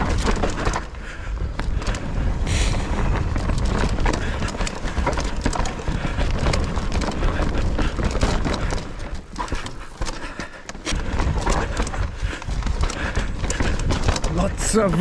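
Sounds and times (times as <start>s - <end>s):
mountain bike clattering: 0.0s - 15.0s
low rumble: 1.3s - 8.3s.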